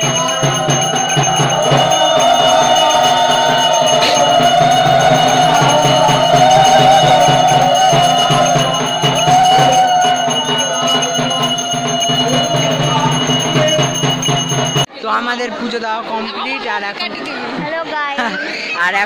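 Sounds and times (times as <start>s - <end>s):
bells ringing: 0.0s - 14.9s
steady drum beat: 0.0s - 14.9s
wavering melody: 0.0s - 14.9s.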